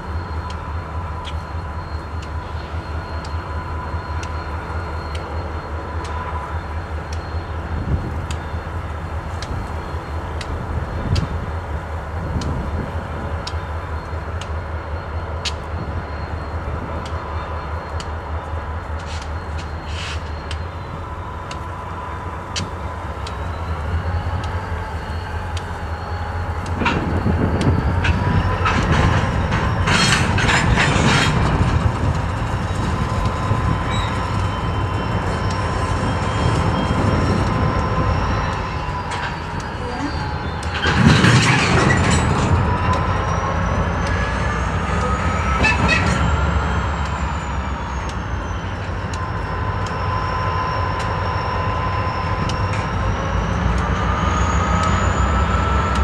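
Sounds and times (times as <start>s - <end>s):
rumble of train wheels: 0.0s - 56.0s
wheels squealing: 19.0s - 56.0s
freight cars clattering: 26.7s - 37.6s, 38.5s - 47.6s.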